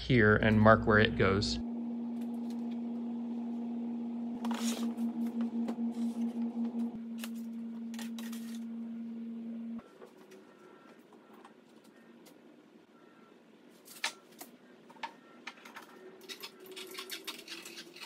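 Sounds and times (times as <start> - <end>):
steady low hum: 0.0 - 13.7.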